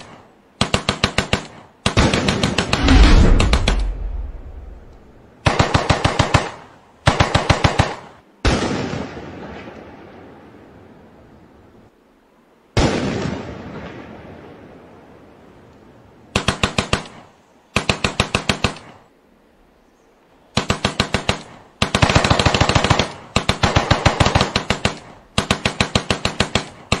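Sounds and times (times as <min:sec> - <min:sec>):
explosion: 0:02.7 - 0:05.2.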